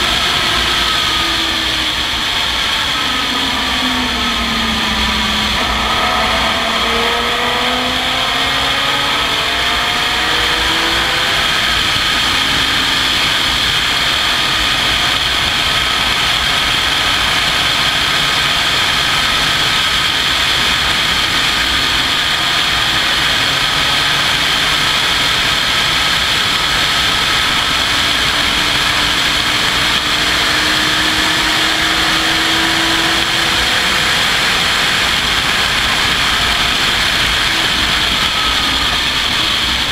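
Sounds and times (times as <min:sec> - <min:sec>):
racing car engine accelerating: 0:00.0 - 0:39.9
wind rushing: 0:00.9 - 0:13.7.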